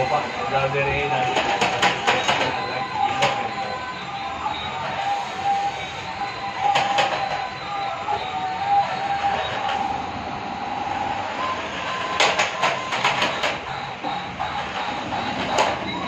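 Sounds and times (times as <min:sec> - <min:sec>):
toy car electric motor whine: 0:02.8 - 0:16.0.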